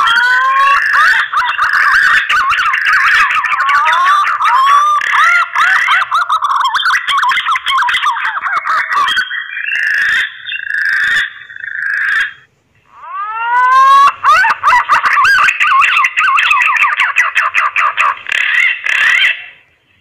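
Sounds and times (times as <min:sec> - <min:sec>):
pigeons whistled warbling calls: 0:13.2 - 0:19.6.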